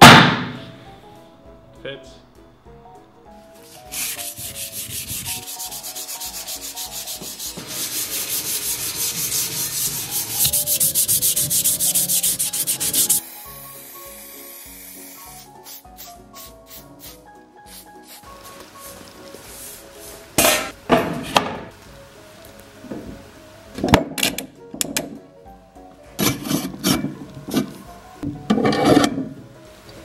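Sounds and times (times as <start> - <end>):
faint background music: 0.0 - 30.0
hand sanding steel: 3.6 - 13.3.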